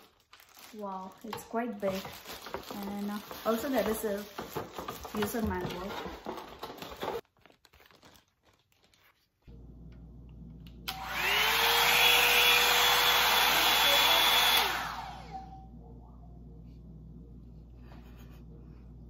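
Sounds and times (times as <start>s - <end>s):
plastic wrapping rustling: 0.0s - 9.5s
hair dryer fan whirring: 9.5s - 15.7s.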